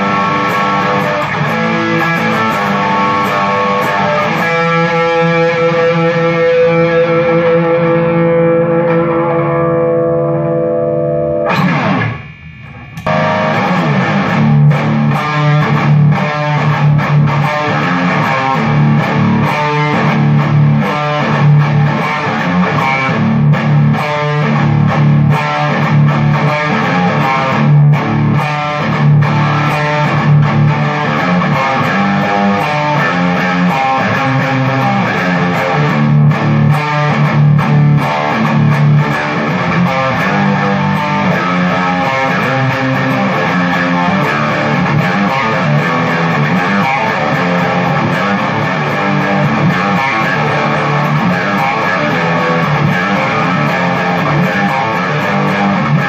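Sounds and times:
electric guitar rock riffs: 0:00.0 - 0:56.0.

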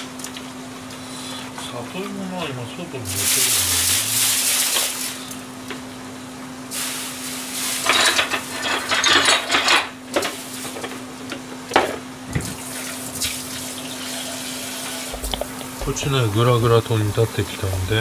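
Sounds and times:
plastic containers knocking: 0:15.1 - 0:16.2
low hum: 0:15.2 - 0:18.0.

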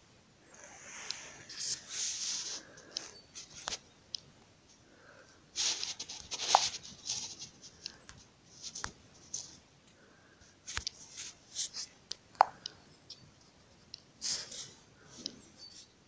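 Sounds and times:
scratchy rustling: 0:00.6 - 0:03.8, 0:05.6 - 0:09.6, 0:10.6 - 0:12.0.

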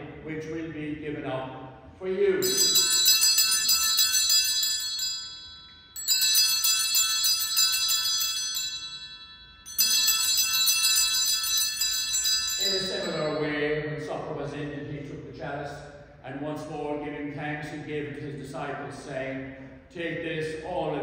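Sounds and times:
man speaking: 0:00.0 - 0:02.6, 0:12.6 - 0:21.0
small bells ringing: 0:02.4 - 0:14.0.

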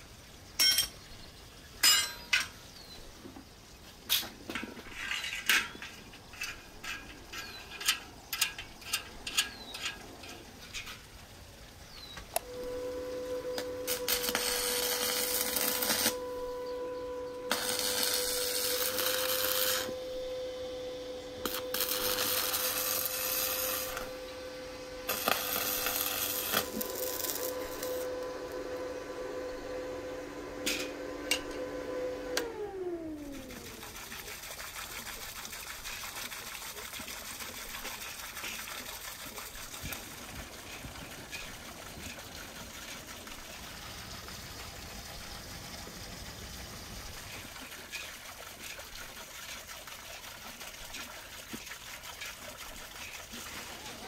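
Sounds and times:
flowing water rushing: 0:03.7 - 0:29.8, 0:32.4 - 0:54.0
welding arc crackling and hissing: 0:12.2 - 0:16.6, 0:17.4 - 0:31.6
welding machine hum: 0:12.4 - 0:34.2.

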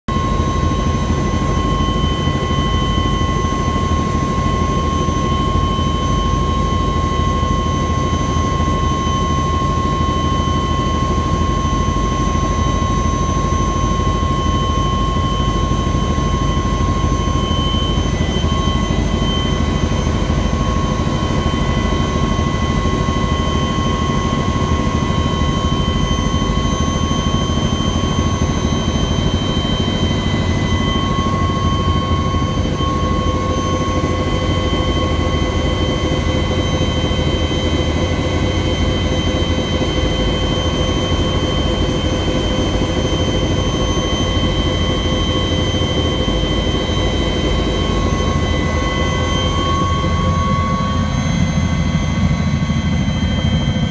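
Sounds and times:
high turbine whine: 0:00.1 - 0:53.9
helicopter cabin rumble: 0:13.2 - 0:53.9.

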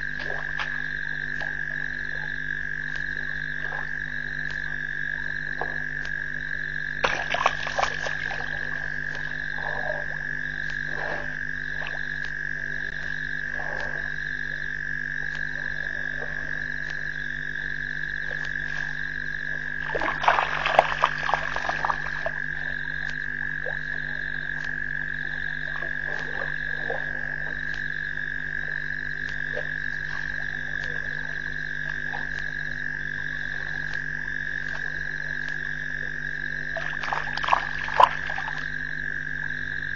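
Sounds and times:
frog pulsing call: 0:00.0 - 0:39.9
frogs trilling: 0:00.0 - 0:39.9
low steady hum: 0:00.0 - 0:39.9
crackling splashy noise: 0:07.0 - 0:09.6, 0:19.8 - 0:24.8, 0:36.7 - 0:38.8.

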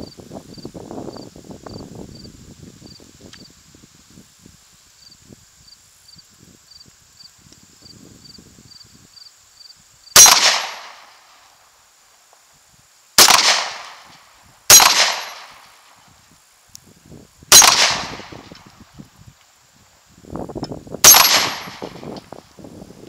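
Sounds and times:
gunshots: 0:10.2 - 0:11.2, 0:13.2 - 0:15.7, 0:17.5 - 0:18.4, 0:21.0 - 0:22.0.

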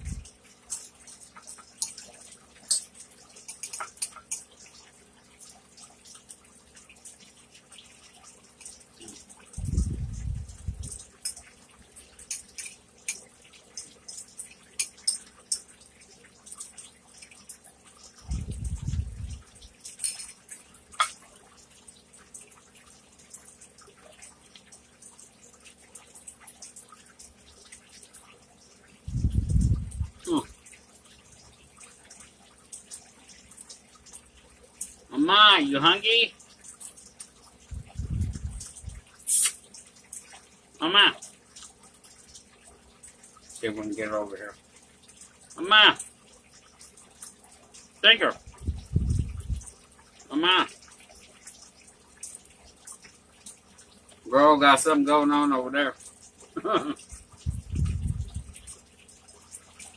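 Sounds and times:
wet mouth sounds of eating: 0:37.8 - 0:39.6.

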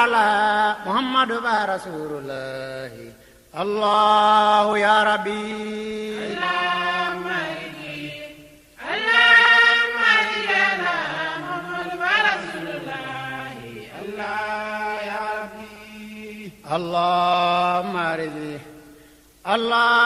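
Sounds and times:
person chanting: 0:00.0 - 0:18.8.

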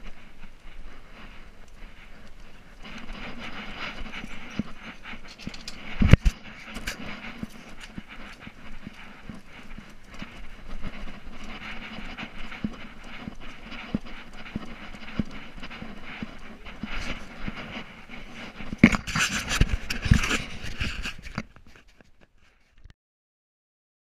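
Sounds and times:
dog panting: 0:00.0 - 0:21.4
camera rattling against collar: 0:00.0 - 0:22.9.

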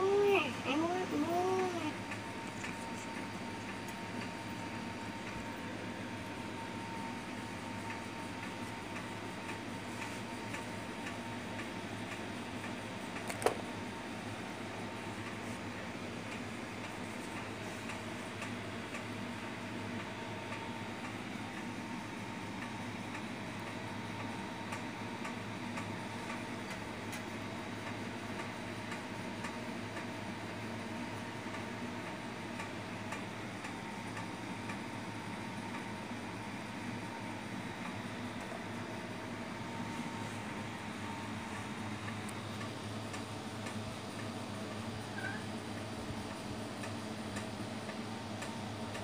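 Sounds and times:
steady low hum: 0:00.0 - 0:49.0
faint regular ticks: 0:01.1 - 0:04.4, 0:42.0 - 0:49.0.

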